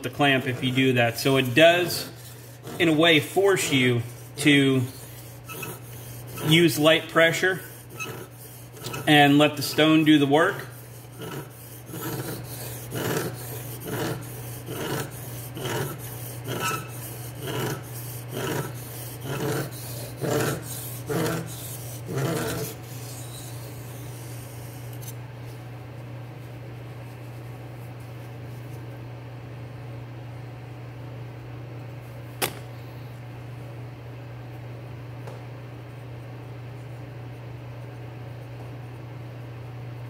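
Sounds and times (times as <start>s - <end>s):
steady low hum: 0.0s - 40.0s
knife blade rasping on whetstone: 0.1s - 25.2s
sharp click: 32.4s - 32.7s.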